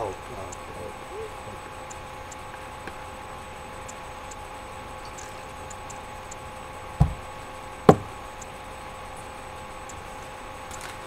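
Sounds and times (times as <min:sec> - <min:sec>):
faint ticking: 0:00.0 - 0:10.7
electrical hum: 0:00.0 - 0:11.0
knocks: 0:07.0 - 0:07.3, 0:07.9 - 0:08.1.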